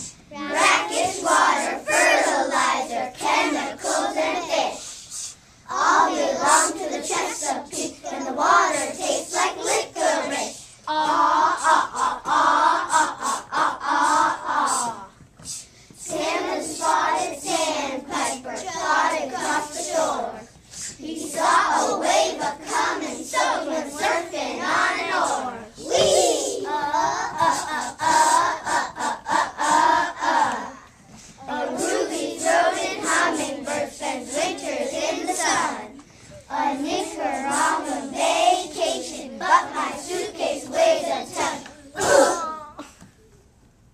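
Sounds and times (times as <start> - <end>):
children chanting a rap: 0.0 - 42.7
hand beatboxing hits: 11.4 - 16.0, 27.1 - 30.2.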